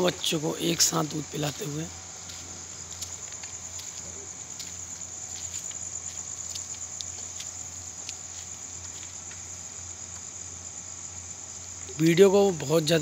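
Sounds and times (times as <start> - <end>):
crickets chirring: 0.0 - 13.0
faint ticks: 5.4 - 9.5, 10.1 - 10.3.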